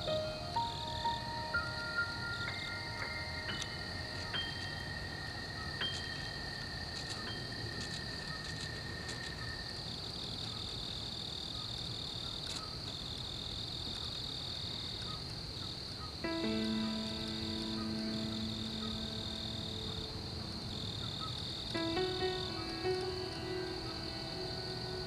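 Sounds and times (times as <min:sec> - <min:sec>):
soft chime notes: 0:00.0 - 0:08.3
sustained musical tones: 0:00.0 - 0:09.1, 0:16.2 - 0:25.0
crickets chirring: 0:00.0 - 0:25.0.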